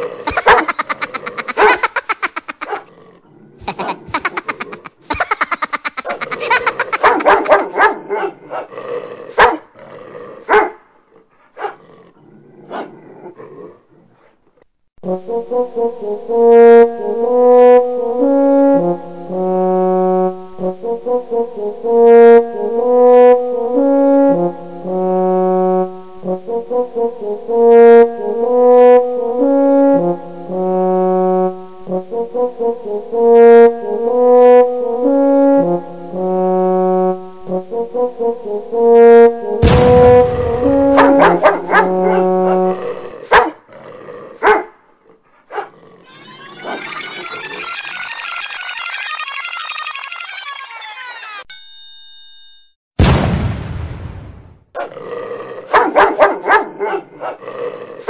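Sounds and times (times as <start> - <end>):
dog barking rapidly: 0.3 - 0.8, 1.6 - 1.9, 6.9 - 8.7, 9.4 - 9.7, 10.5 - 10.8, 11.6 - 11.8, 41.0 - 42.7, 43.3 - 43.6, 44.4 - 44.7, 55.7 - 57.4
brass instruments playing a tune: 15.0 - 43.1.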